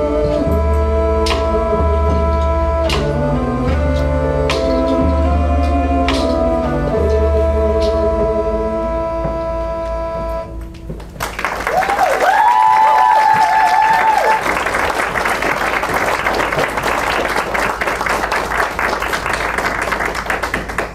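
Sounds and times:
audience applauding: 0:11.0 - 0:20.9
cheers and whoops: 0:11.6 - 0:14.7.

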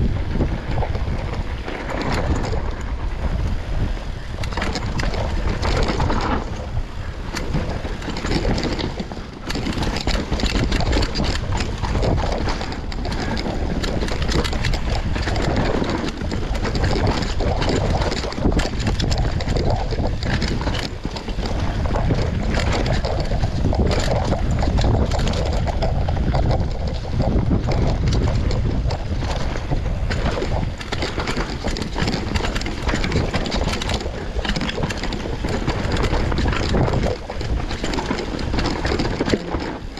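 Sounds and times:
bike rattling and clattering: 0:00.0 - 0:39.9
tyres rushing on dirt: 0:00.0 - 0:39.9
wind buffeting microphone: 0:00.0 - 0:39.9.

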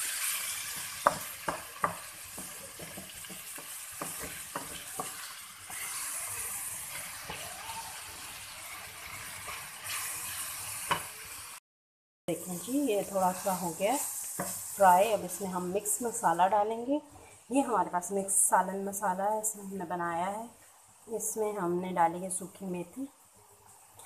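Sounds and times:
chicken sizzling in hot oil: 0:00.0 - 0:11.6, 0:12.3 - 0:16.4
spatula knocking against pan: 0:01.0 - 0:05.2.

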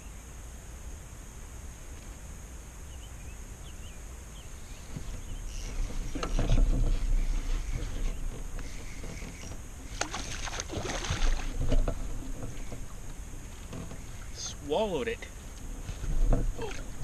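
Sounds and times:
fish splashing in water: 0:09.8 - 0:11.7.

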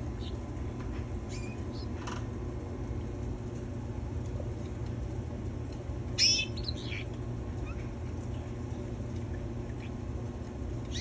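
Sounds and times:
canaries chirping: 0:00.1 - 0:00.4, 0:01.3 - 0:02.0, 0:06.2 - 0:07.9.

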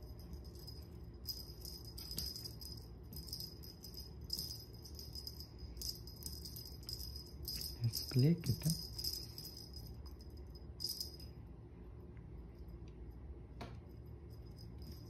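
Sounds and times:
wand toy jingling: 0:00.0 - 0:11.3.

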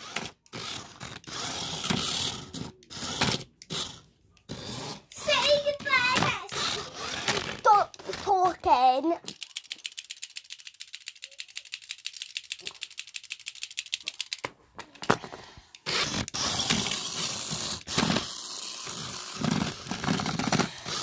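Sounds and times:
toy robots clicking fast: 0:00.0 - 0:15.0, 0:15.7 - 0:21.0.

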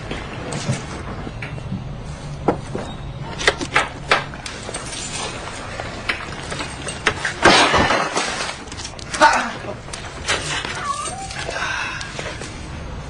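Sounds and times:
clattering crash: 0:04.1 - 0:09.0.

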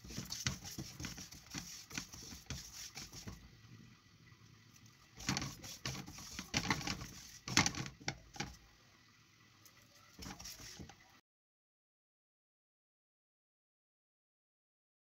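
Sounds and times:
seeds stirred in frying pan: 0:05.2 - 0:08.5.

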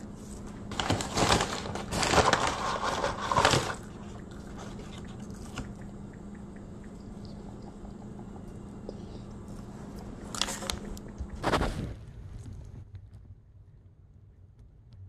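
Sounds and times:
paper bag crinkling: 0:00.0 - 0:05.7
chewing fries: 0:00.0 - 0:11.7.

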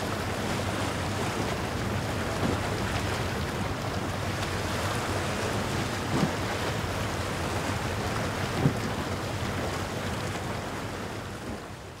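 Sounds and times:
sea waves: 0:00.0 - 0:12.0.

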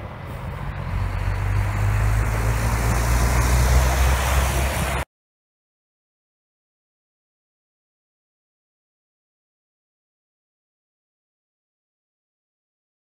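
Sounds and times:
jet engines roaring: 0:00.0 - 0:05.0.

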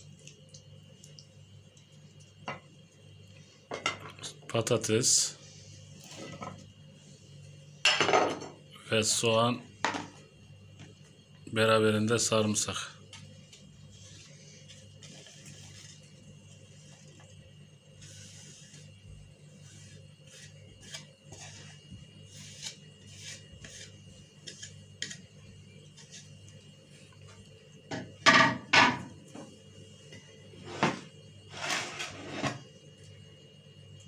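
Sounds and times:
faint steady hum: 0:00.0 - 0:34.0
dishes clattering: 0:07.9 - 0:08.6, 0:27.9 - 0:29.1.

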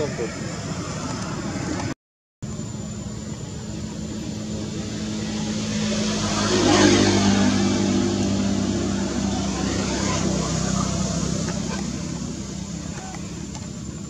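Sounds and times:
vehicle engine passing: 0:03.4 - 0:14.0.

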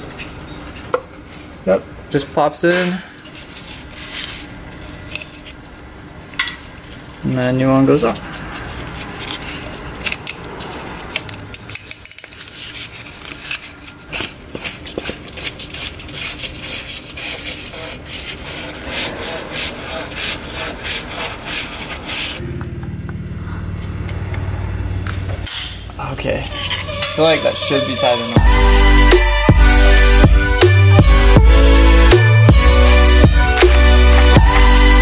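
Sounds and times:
steady low hum: 0:16.5 - 0:27.5.

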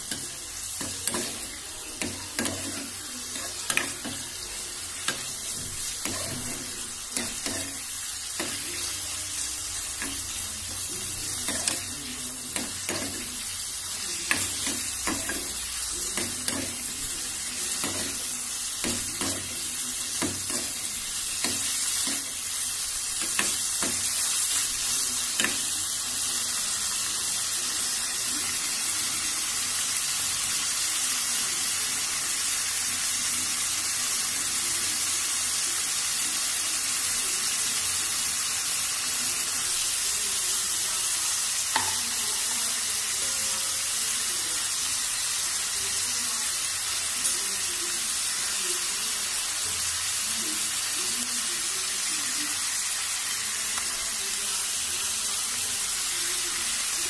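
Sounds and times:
spoon clacking against a pan: 0:00.0 - 0:09.0, 0:09.7 - 0:24.6, 0:25.2 - 0:25.8, 0:41.7 - 0:42.2
meat sizzling in a frying pan: 0:00.0 - 0:57.0.

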